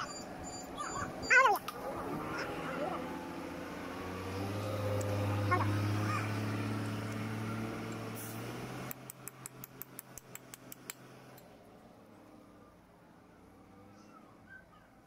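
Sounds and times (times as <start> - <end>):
sharp clicks: 8.8 - 11.4.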